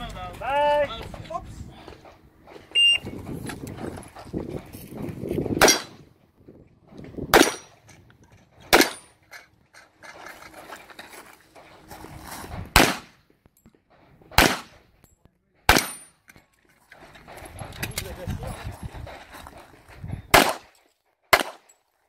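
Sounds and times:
handgun shots: 5.6s - 6.0s, 7.3s - 7.7s, 8.7s - 9.1s, 12.7s - 13.2s, 14.3s - 14.8s, 15.7s - 16.1s, 20.3s - 21.7s.

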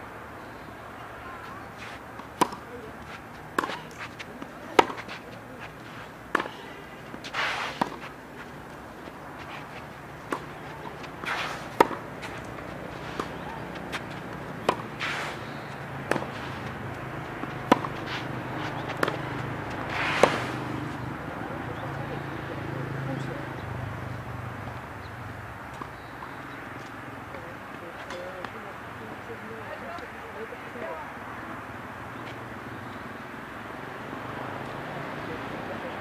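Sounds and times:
shoes scuffing on court: 1.4s - 21.1s
rackets striking tennis ball: 1.4s - 21.3s, 25.7s - 28.6s
ball bouncing on court: 15.7s - 20.8s.

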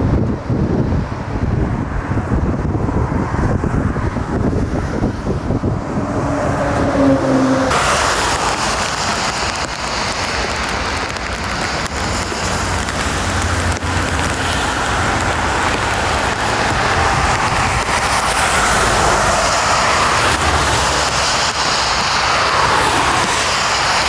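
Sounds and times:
heavy rain and wind hiss: 0.0s - 24.0s
jet airliner engine rumble: 0.0s - 24.0s.

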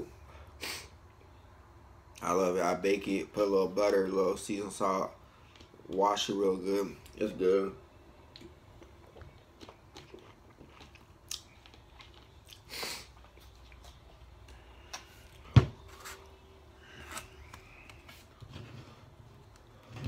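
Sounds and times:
chewing: 8.3s - 15.1s.

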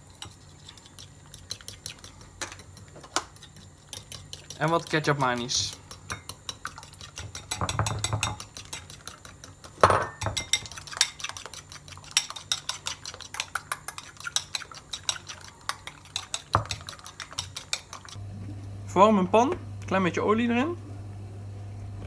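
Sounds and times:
metal spoon clinking in bowl: 3.4s - 9.2s, 9.8s - 11.4s.

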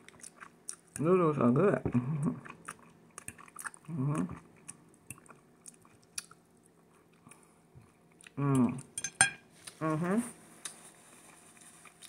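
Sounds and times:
person chewing noodles: 0.0s - 1.2s, 1.8s - 9.0s, 10.6s - 12.0s
person humming: 8.4s - 8.9s, 9.8s - 10.4s.

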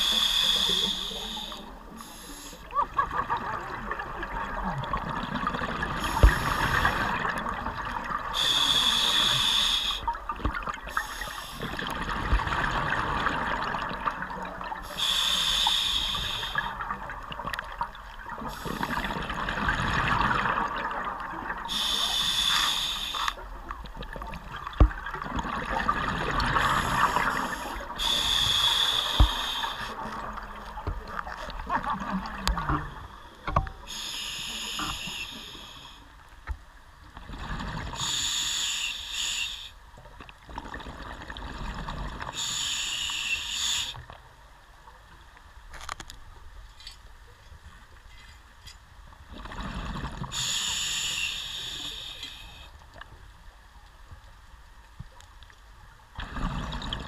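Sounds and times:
regulator breathing hiss: 0.0s - 2.7s, 6.0s - 7.2s, 8.4s - 10.2s, 10.9s - 11.7s, 14.8s - 16.8s, 18.5s - 19.1s, 21.7s - 23.4s, 26.6s - 30.2s, 33.0s - 36.1s, 38.0s - 39.8s, 42.4s - 44.1s, 50.3s - 52.9s
rush of bubbles: 2.7s - 8.4s, 10.3s - 14.8s, 16.6s - 21.8s, 24.0s - 32.9s, 56.2s - 57.0s.

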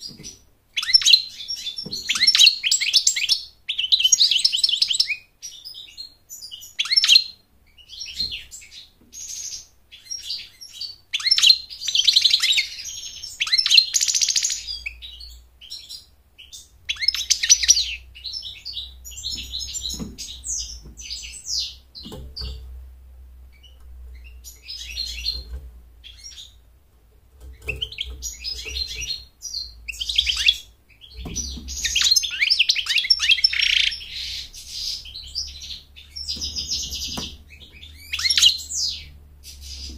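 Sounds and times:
goldfinch twittering: 9.2s - 22.6s, 27.5s - 39.9s.

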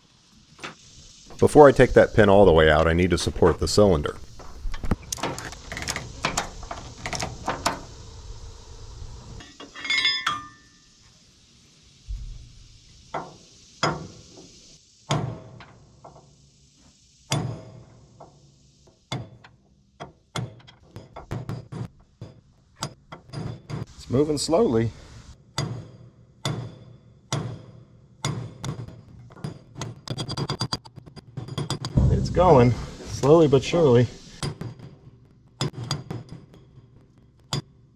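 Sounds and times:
hammer striking metal: 32.0s - 33.7s.

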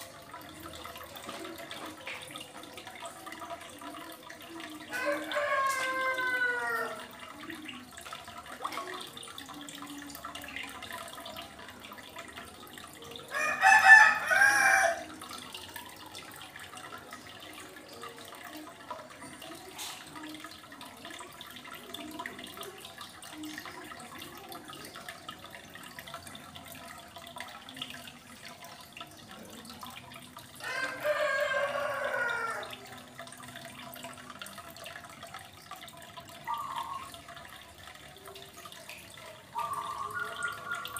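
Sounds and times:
aquarium filter trickling water: 0.0s - 40.9s
rooster crowing: 4.9s - 7.0s, 13.3s - 15.1s, 30.6s - 32.7s.

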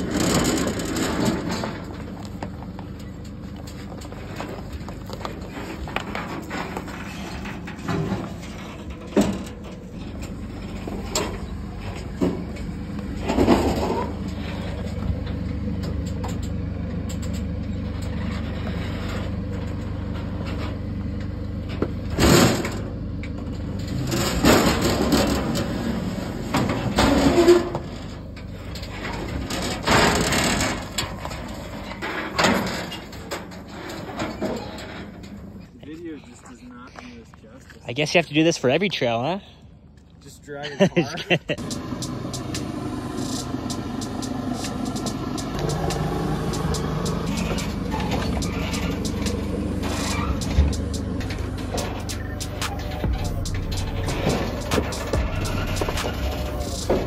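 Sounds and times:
diesel engine droning under load: 0.0s - 57.0s
trailer frame clanking and creaking: 0.0s - 57.0s
tyres grinding on stone: 41.6s - 57.0s.

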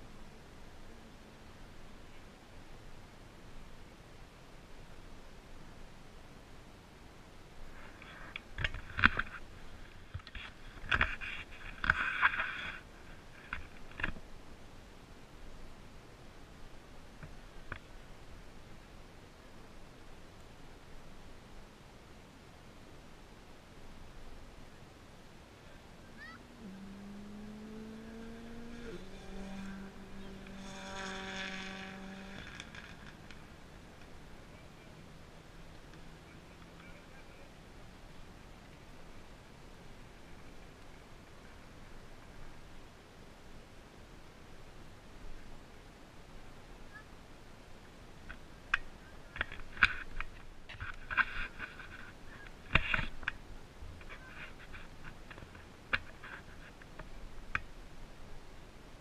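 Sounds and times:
scraping against microphone: 7.6s - 14.2s, 49.4s - 57.1s
vehicle engine running: 26.8s - 35.1s.

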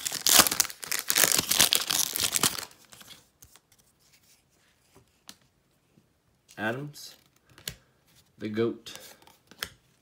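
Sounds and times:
wrapper tearing and crinkling: 0.0s - 3.0s.

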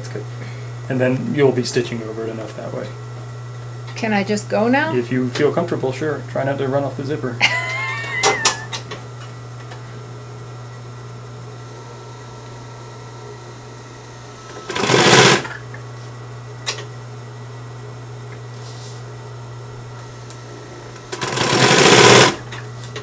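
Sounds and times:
sewing machine motor humming: 7.5s - 8.9s, 14.4s - 15.7s, 20.0s - 22.6s
sewing machine stitching: 14.7s - 15.6s, 21.1s - 22.4s.

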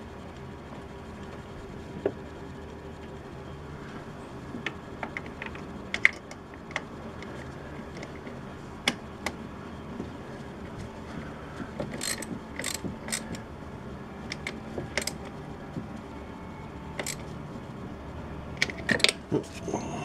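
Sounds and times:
ratchet wrench clicking: 11.8s - 13.4s, 14.3s - 15.2s, 17.0s - 17.3s.

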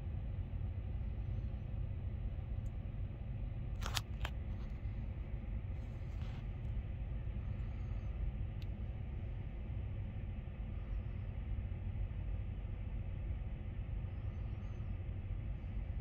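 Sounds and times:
low outdoor rumble: 0.0s - 16.0s
camera handling clicks: 3.8s - 4.4s.

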